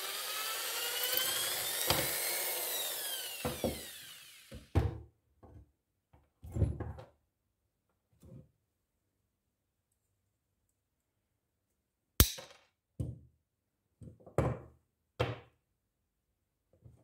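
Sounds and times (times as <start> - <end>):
electric drill running: 0.0 - 4.7.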